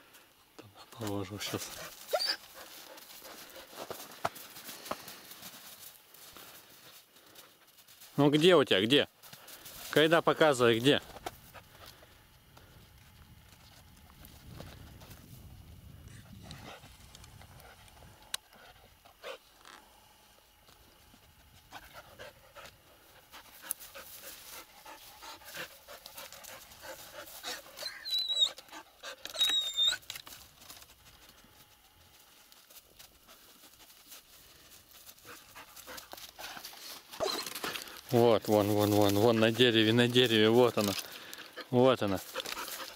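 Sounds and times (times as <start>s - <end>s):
dog panting: 1.4s - 4.1s, 21.3s - 29.5s, 33.2s - 38.0s, 41.4s - 42.9s
dog whining: 2.1s - 2.5s, 27.4s - 30.1s, 37.1s - 37.6s.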